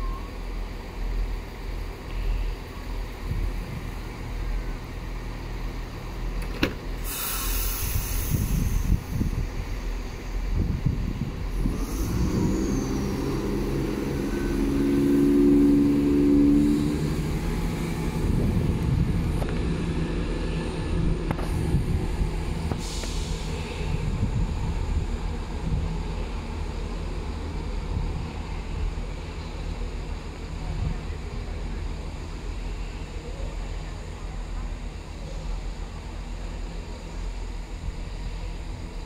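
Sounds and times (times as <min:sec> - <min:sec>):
diesel train engines: 0:00.0 - 0:39.0
short hiss: 0:07.0 - 0:09.1, 0:22.7 - 0:23.9.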